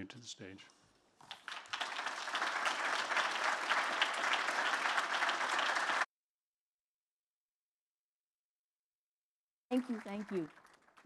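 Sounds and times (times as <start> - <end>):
audience applauding: 1.2 - 6.1, 9.7 - 11.0.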